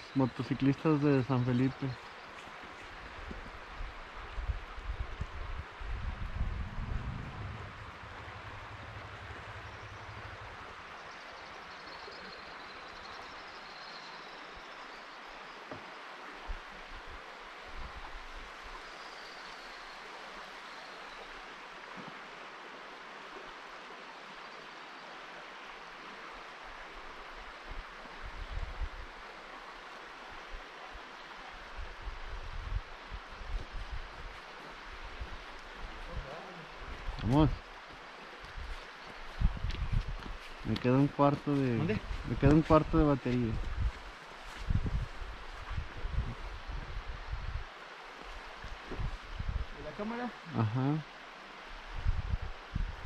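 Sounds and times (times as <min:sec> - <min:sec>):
steady rushing outdoor noise: 0:02.1 - 0:12.6
wind bumps on microphone: 0:04.4 - 0:10.7, 0:39.3 - 0:40.8, 0:41.8 - 0:47.7, 0:48.6 - 0:49.8, 0:51.9 - 0:53.0.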